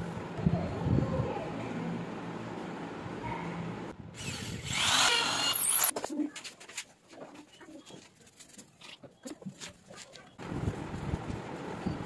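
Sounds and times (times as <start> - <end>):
power tool running: 4.2 - 5.9.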